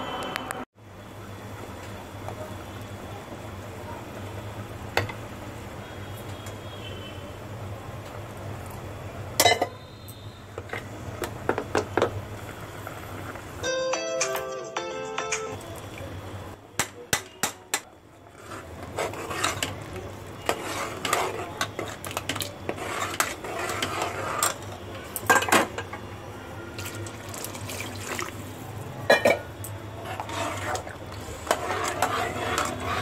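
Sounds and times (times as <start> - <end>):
spoon stirring liquid in pot: 18.3 - 24.7, 30.0 - 33.0.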